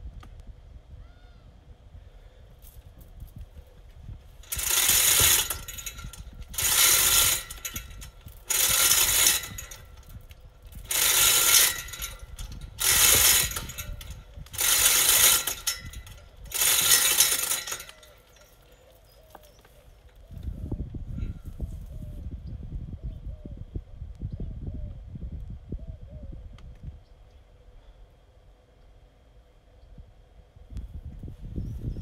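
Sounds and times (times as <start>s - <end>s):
hoist chain rattling and clicking: 4.4s - 18.8s.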